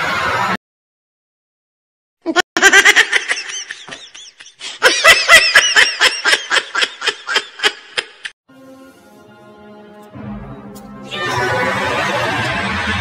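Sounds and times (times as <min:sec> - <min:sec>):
high-pitched laughter: 0:02.3 - 0:08.3, 0:11.1 - 0:13.0.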